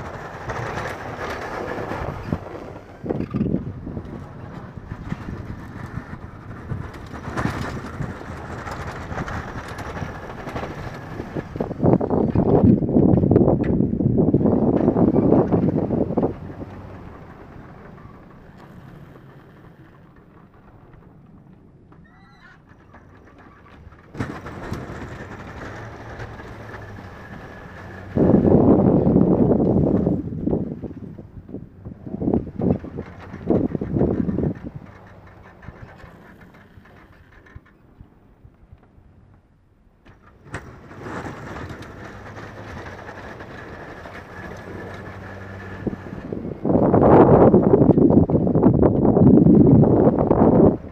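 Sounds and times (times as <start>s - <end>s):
plow blade pushing snow: 0.0s - 38.0s, 40.0s - 50.9s
pickup truck engine: 22.8s - 37.8s, 40.1s - 50.9s.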